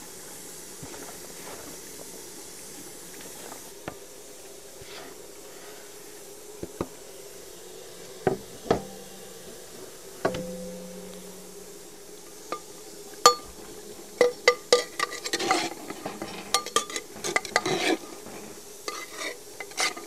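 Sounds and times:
cooking hiss in a pot: 0.0s - 20.0s
faint steady tone: 7.0s - 19.1s
metal utensil knocking on pot: 10.3s - 11.6s, 13.3s - 13.6s, 16.5s - 17.6s.

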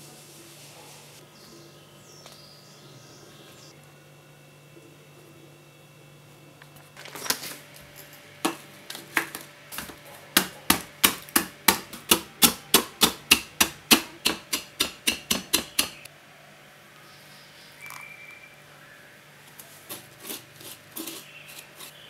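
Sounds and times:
wooden pestle pounding in bowl: 9.2s - 16.1s.

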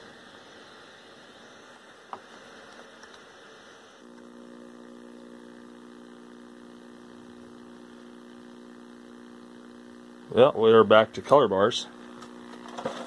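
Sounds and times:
television buzzing hum: 0.0s - 13.0s.

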